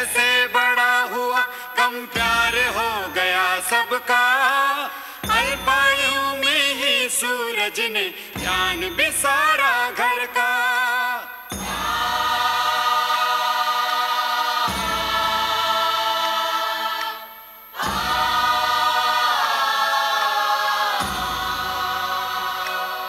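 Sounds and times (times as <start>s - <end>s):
held choir-like chords: 10.8s - 23.0s.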